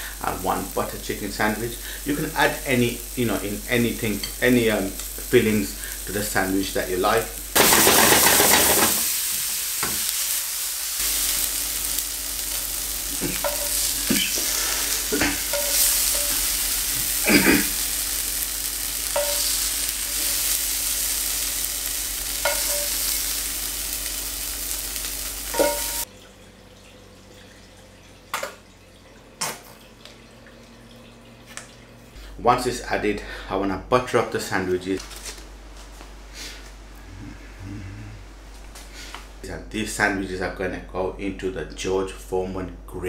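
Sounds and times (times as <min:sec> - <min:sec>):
vegetables sizzling in a frying pan: 0:00.0 - 0:26.1
spatula scraping a pan: 0:13.2 - 0:17.1, 0:22.4 - 0:23.2.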